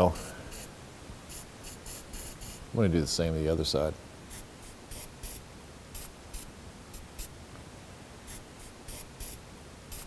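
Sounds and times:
aerosol spray hisses: 0.0s - 0.7s, 1.3s - 2.6s, 4.3s - 5.4s, 8.3s - 10.0s.

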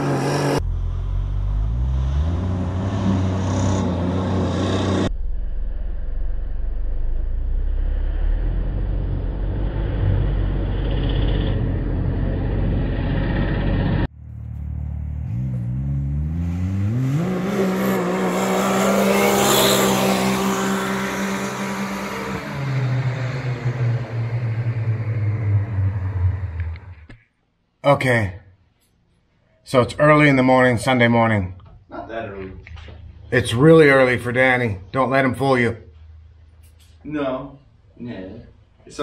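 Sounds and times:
engine revving: 0.0s - 27.2s.

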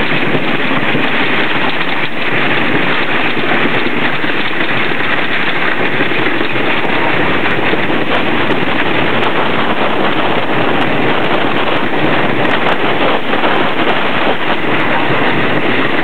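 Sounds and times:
roller coaster rattling on track: 0.0s - 16.0s.

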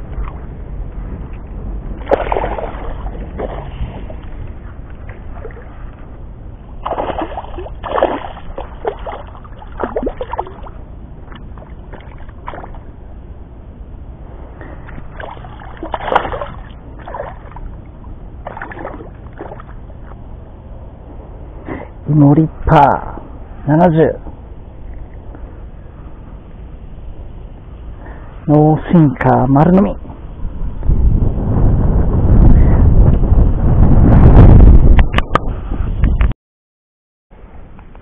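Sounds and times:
steady low rumble: 0.0s - 36.3s
fish thrashing and splashing: 2.0s - 4.2s, 6.8s - 12.9s, 14.9s - 17.8s, 18.4s - 20.2s.

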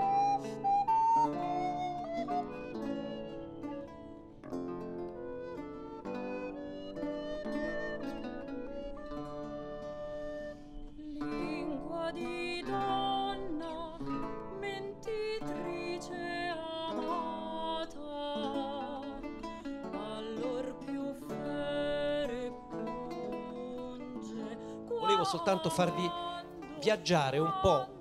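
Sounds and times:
woman singing with vibrato: 11.0s - 28.0s.

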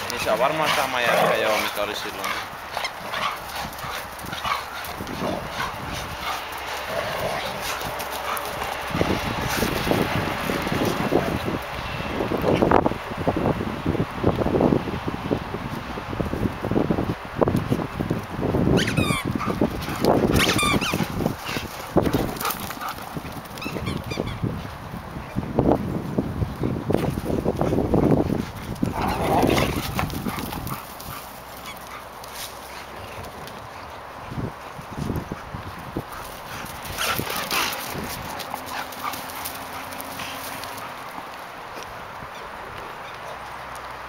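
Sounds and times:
paws scuffling on forest ground: 0.0s - 12.7s, 17.6s - 44.0s
dogs yelping: 0.2s - 8.7s, 18.8s - 21.7s, 23.6s - 24.4s
wind rumble on microphone: 2.4s - 44.0s.

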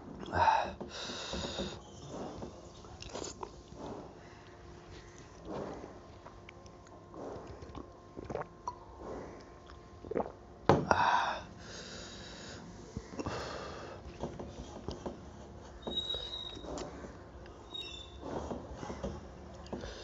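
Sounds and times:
man chewing: 2.1s - 10.4s.

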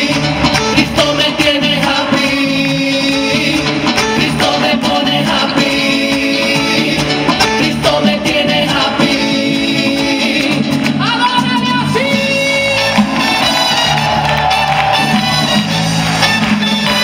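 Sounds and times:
band with keyboard: 0.0s - 17.0s.

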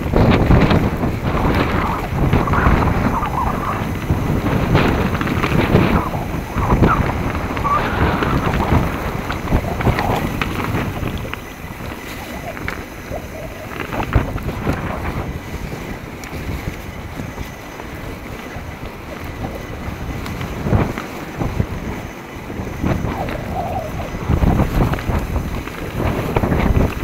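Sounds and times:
bike knocking and rattling: 0.0s - 27.0s
bike tyres on dirt: 0.0s - 27.0s
wind rushing over microphone: 0.0s - 27.0s.

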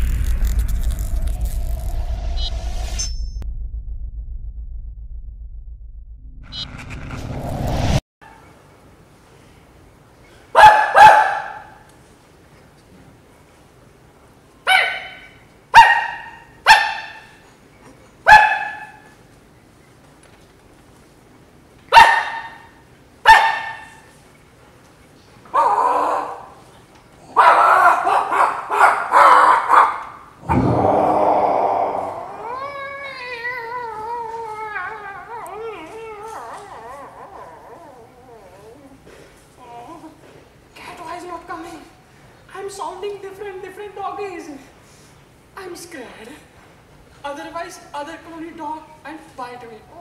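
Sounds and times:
loud rough noise: 0.0s - 8.0s, 30.4s - 32.2s
dog barking: 10.6s - 11.8s, 14.7s - 17.4s, 18.3s - 19.1s, 21.9s - 22.7s, 23.3s - 24.0s, 25.6s - 26.6s, 27.3s - 30.2s
man howling like a dog: 30.5s - 38.8s.

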